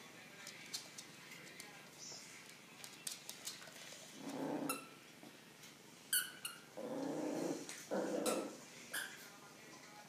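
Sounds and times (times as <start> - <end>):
dog growling: 4.1 - 4.9, 6.7 - 8.7.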